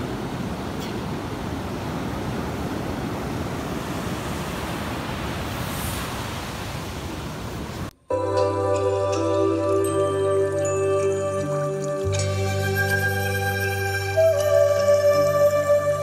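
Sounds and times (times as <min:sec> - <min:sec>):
ocean waves breaking on beach: 0:00.0 - 0:07.9.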